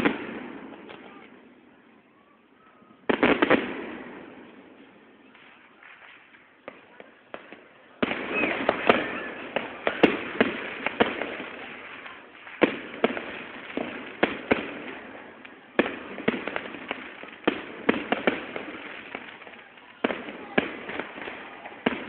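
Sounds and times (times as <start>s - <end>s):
fireworks bangs: 0.0s - 22.0s.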